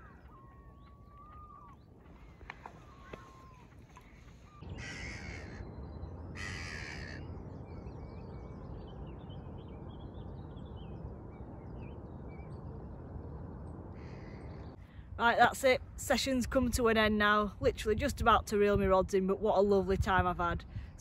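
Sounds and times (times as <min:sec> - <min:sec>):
whistled bird calls: 0:00.0 - 0:05.6
crow cawing: 0:00.0 - 0:05.7, 0:06.4 - 0:07.2, 0:14.0 - 0:14.5
small birds chirping: 0:00.0 - 0:12.8.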